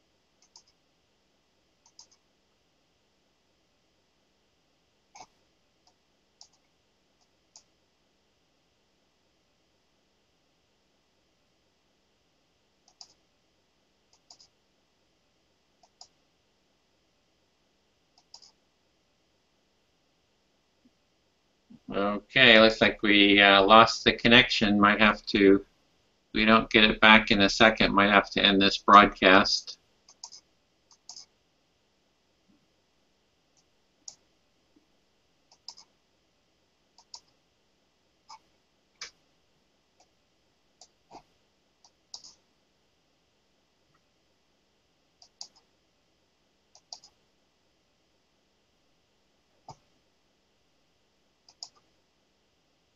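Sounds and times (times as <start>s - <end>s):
computer mouse clicks: 0.4s - 0.8s, 1.8s - 2.3s, 5.1s - 7.7s, 12.8s - 13.2s, 14.1s - 14.6s, 15.8s - 16.2s, 18.1s - 18.6s, 30.1s - 31.3s, 33.6s - 34.2s, 35.5s - 35.9s, 37.0s - 37.4s, 38.3s - 39.2s, 40.8s - 42.4s, 45.2s - 45.7s, 46.7s - 47.2s, 51.4s - 51.9s.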